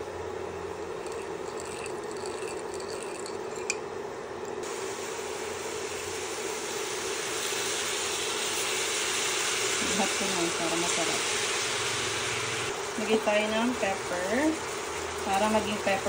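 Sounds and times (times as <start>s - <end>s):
spoon clinking on ceramic bowl: 1.0s - 3.8s
beef sizzling in a skillet: 4.6s - 16.0s.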